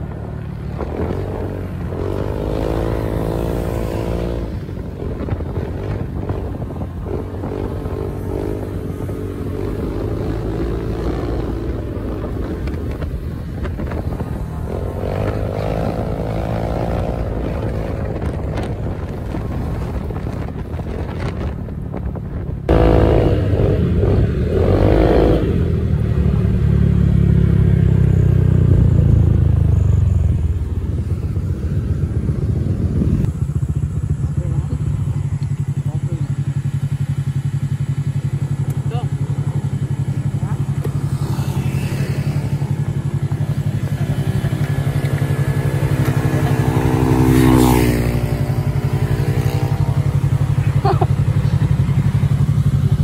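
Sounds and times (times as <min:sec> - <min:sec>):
wind noise: 0:00.0 - 0:26.5, 0:28.4 - 0:35.3
motorcycle engines revving: 0:00.0 - 0:53.0
scooter engine: 0:00.0 - 0:53.0.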